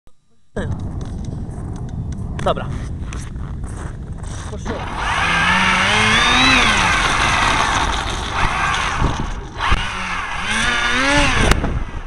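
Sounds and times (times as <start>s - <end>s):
model airplane motor revving: 4.8s - 11.6s.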